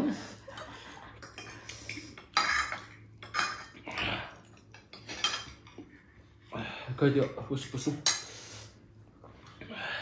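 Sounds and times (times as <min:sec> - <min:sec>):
utensils clinking against bowl: 0:01.2 - 0:05.9.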